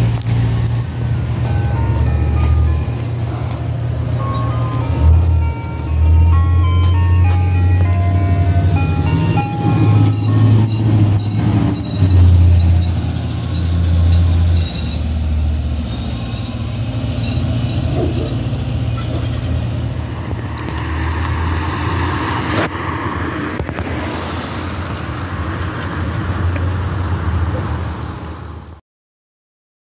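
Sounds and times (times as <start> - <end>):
ice cream truck jingle: 0.0 - 19.0
low vehicle rumble: 0.0 - 28.8
vehicle moving rushing noise: 0.0 - 28.8.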